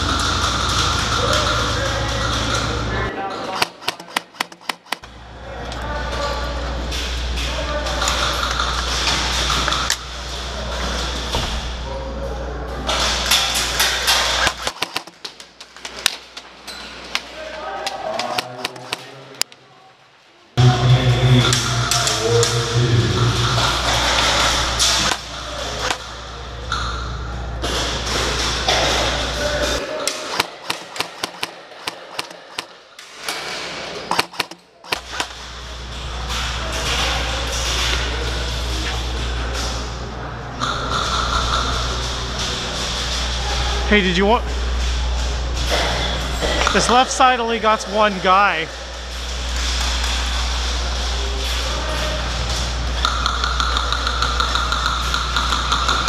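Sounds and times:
airsoft shots and bbs hitting: 3.6s - 5.0s, 14.4s - 15.2s, 30.3s - 32.7s, 34.1s - 35.2s
rushing din with low hum: 20.6s - 29.3s.

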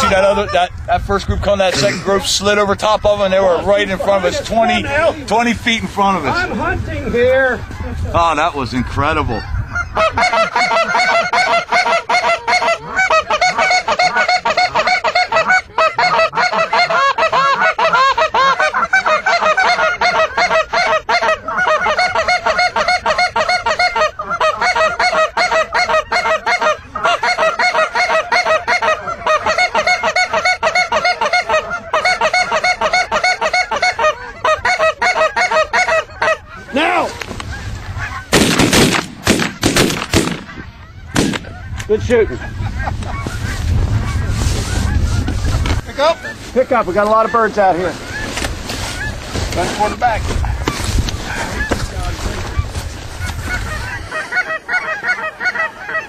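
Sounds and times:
flock of geese honking: 0.0s - 56.0s
shotgun blasts: 38.3s - 41.6s.

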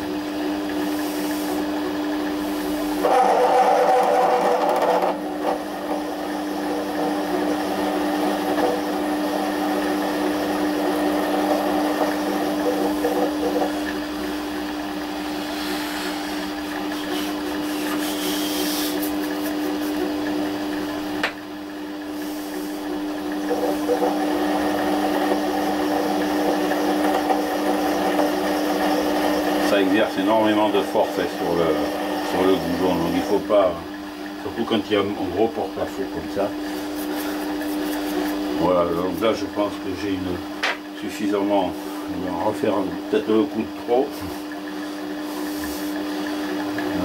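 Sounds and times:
lathe motor and gear hum: 0.0s - 47.0s
hissing metal cutting: 2.5s - 20.2s.

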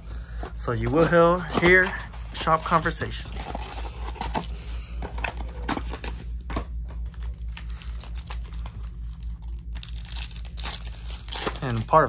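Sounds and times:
low steady hum: 0.0s - 12.0s
foil pack crinkling and tearing: 7.3s - 12.0s.

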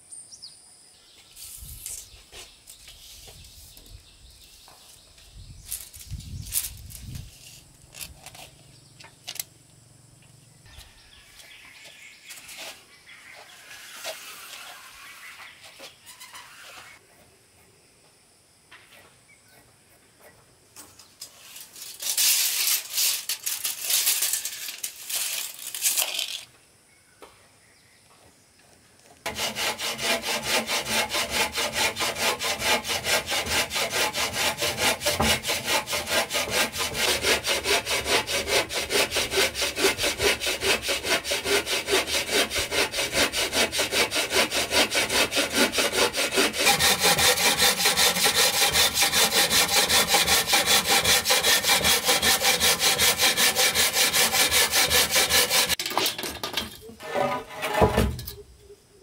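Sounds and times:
scraping and rubbing wood: 12.3s - 17.0s, 29.2s - 58.4s
saw cutting through wood: 29.2s - 55.8s.

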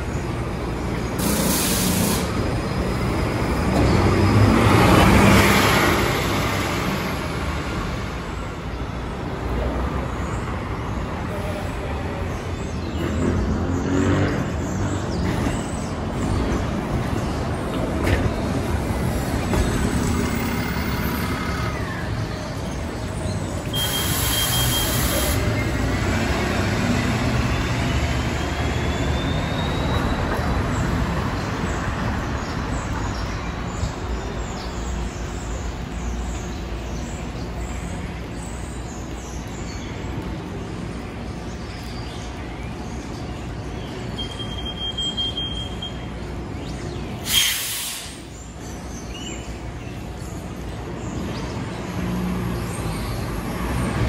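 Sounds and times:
bus engine and road rumble: 0.0s - 54.0s
air hiss burst: 1.2s - 2.4s, 23.8s - 25.6s, 47.2s - 48.3s.

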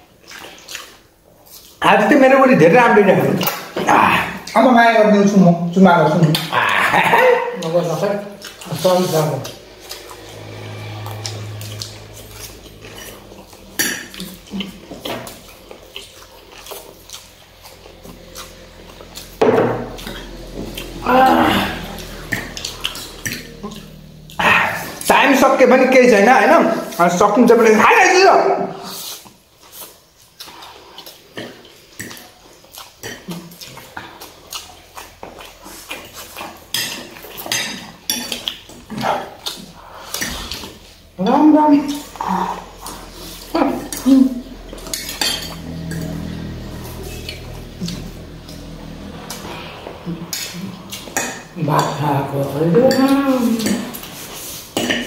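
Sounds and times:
low hum: 8.5s - 26.2s, 42.0s - 52.7s
noodles being slurped: 28.8s - 41.1s
cutlery clinking on plates: 36.4s - 38.7s, 44.8s - 45.6s, 54.8s - 55.0s
forks clinking on plates: 44.7s - 46.1s, 52.8s - 54.1s.

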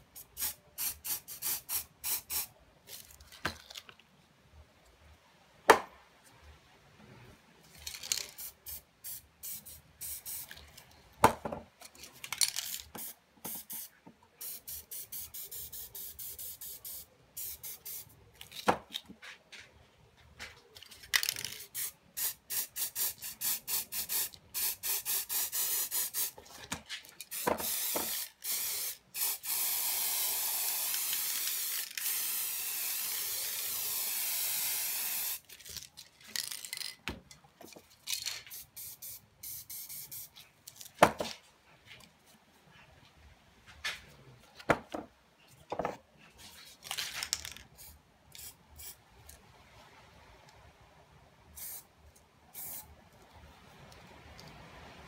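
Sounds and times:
spray paint can hissing: 0.2s - 2.5s, 7.8s - 10.6s, 12.6s - 18.1s, 21.2s - 26.4s, 27.3s - 35.5s, 38.5s - 40.3s, 47.8s - 49.0s, 51.6s - 51.8s, 52.5s - 52.8s.

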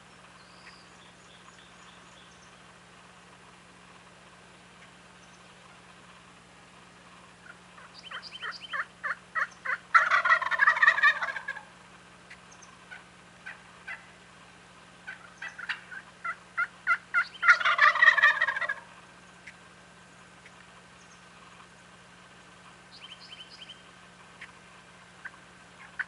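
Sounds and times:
turkey gobbling: 7.3s - 14.1s, 15.0s - 19.7s, 22.9s - 24.6s, 25.2s - 26.0s
turkey yelps: 7.4s - 14.1s, 15.0s - 19.6s, 25.2s - 26.0s.

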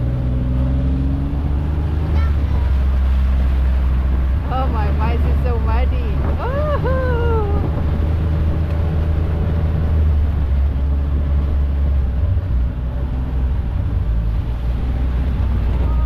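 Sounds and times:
off-road vehicle engine droning: 0.0s - 16.0s.

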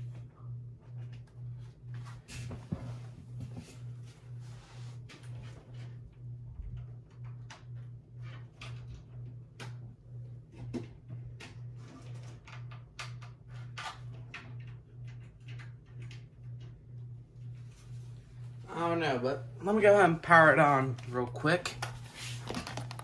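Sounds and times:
low pulsing hum: 0.0s - 23.0s
clicks and rustles of handling: 21.8s - 23.0s.

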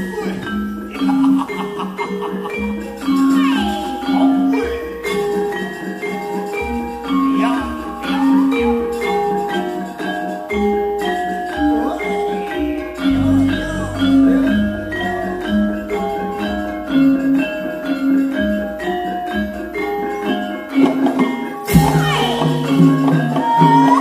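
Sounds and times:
mallet-struck melody notes: 0.0s - 24.0s
low drum beats: 12.9s - 18.8s
deep low ringing stroke: 13.0s - 18.7s.

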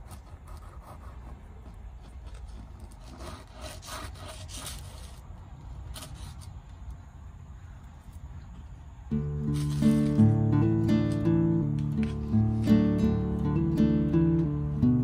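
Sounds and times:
knife scraping on paper plate: 0.0s - 5.2s.

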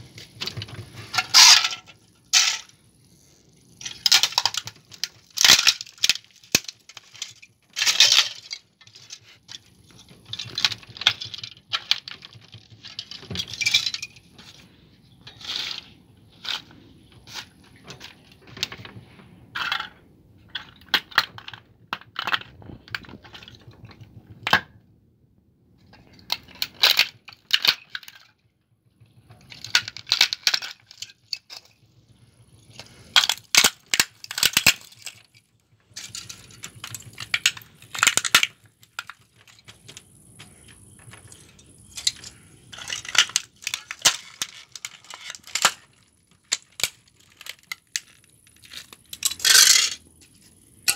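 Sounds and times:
plastic pieces clinking: 0.1s - 23.9s, 25.9s - 28.3s, 29.2s - 50.9s
plastic cracking and crunching: 3.8s - 14.6s, 32.8s - 49.8s.

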